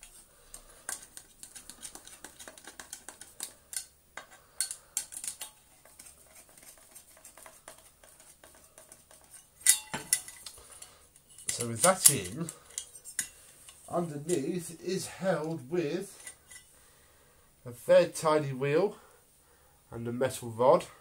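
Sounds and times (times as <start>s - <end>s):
plastic parts clattering: 0.0s - 7.4s, 8.0s - 14.5s
plastic parts clicking and tapping: 0.0s - 10.6s.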